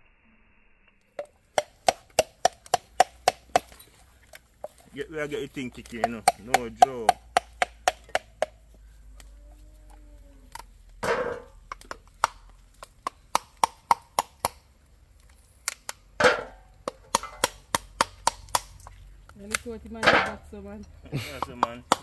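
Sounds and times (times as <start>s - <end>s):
blade chopping coconut: 1.5s - 3.7s, 5.6s - 8.6s, 11.0s - 14.6s, 15.7s - 18.8s, 21.4s - 22.0s.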